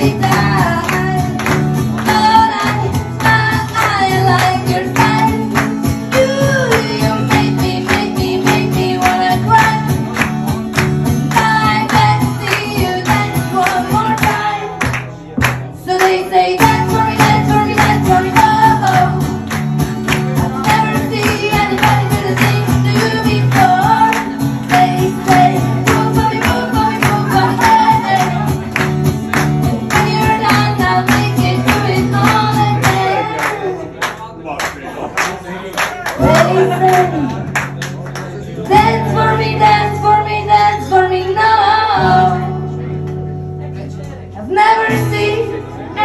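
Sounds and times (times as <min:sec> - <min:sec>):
woman singing: 0:00.0 - 0:10.2, 0:11.2 - 0:14.8, 0:15.8 - 0:19.6, 0:20.5 - 0:28.7, 0:29.6 - 0:33.8, 0:36.2 - 0:37.4, 0:38.7 - 0:42.7, 0:44.4 - 0:46.0
acoustic guitar strumming: 0:00.0 - 0:33.4.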